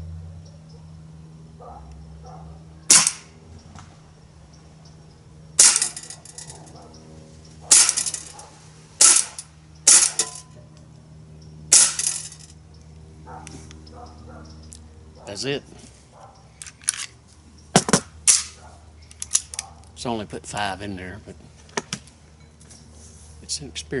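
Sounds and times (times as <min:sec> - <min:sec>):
air pistol shots: 0:02.9 - 0:03.4, 0:05.6 - 0:06.2, 0:07.7 - 0:08.3, 0:09.0 - 0:10.4, 0:11.7 - 0:12.3, 0:17.8 - 0:18.6.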